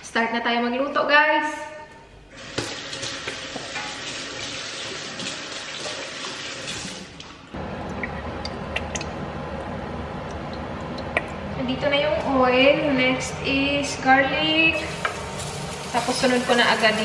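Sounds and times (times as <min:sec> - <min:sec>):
water splashing into a sink: 0:02.4 - 0:09.2
low steady hum: 0:07.5 - 0:17.0.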